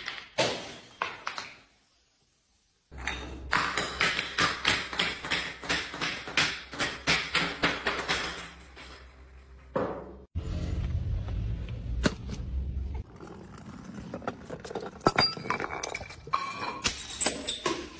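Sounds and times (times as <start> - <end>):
glass bottle tumbling down stairs: 13.1 - 17.9.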